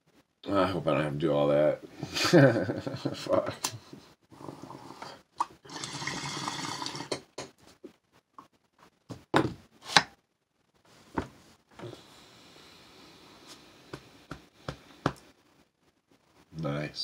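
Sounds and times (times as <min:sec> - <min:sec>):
water bubbling in a bong: 0:05.4 - 0:07.2.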